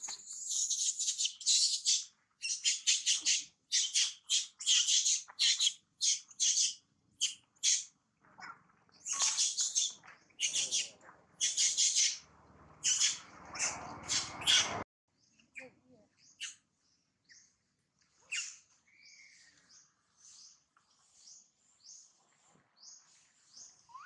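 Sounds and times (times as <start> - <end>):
squeaky animal calls: 12.8 - 14.8.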